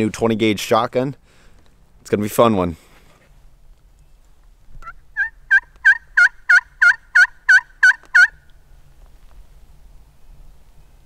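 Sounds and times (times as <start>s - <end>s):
turkey call yelps: 4.8s - 8.4s.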